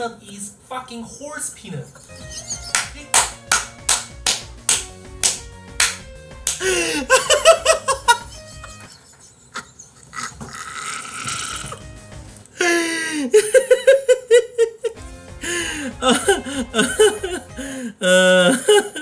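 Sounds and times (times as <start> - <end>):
low background music: 2.0 - 9.0, 11.4 - 19.0
man laughing hard: 6.6 - 9.7, 13.2 - 15.0, 15.6 - 19.0.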